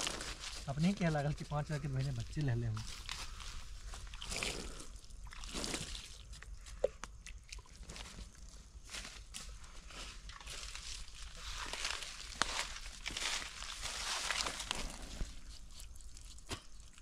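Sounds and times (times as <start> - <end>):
footsteps in dry leaves: 0.0 - 4.0, 8.1 - 16.4.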